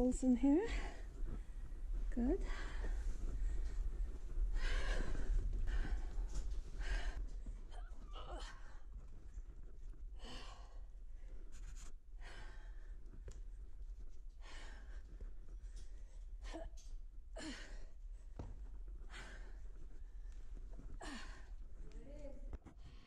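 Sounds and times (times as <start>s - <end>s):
person breathing hard: 2.4s - 7.4s.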